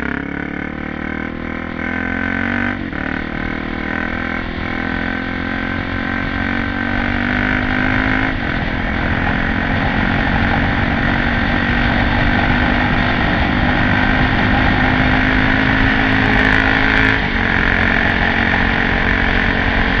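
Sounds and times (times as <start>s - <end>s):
motorcycle engine running: 0.0s - 20.0s
heavy wind rush: 6.4s - 20.0s.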